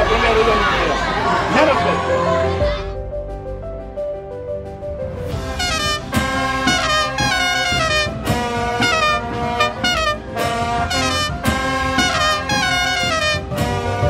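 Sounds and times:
brass-led tune: 1.6 - 14.0
drum hits: 5.3 - 14.0.

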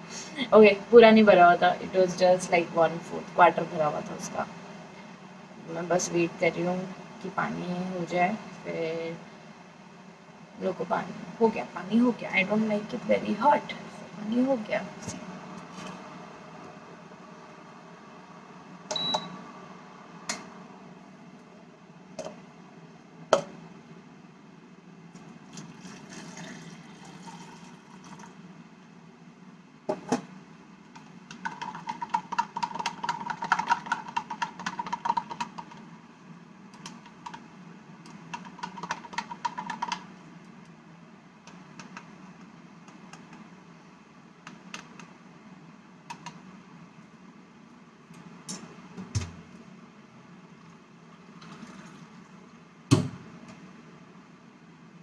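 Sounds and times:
low steady hum: 0.0 - 55.0.

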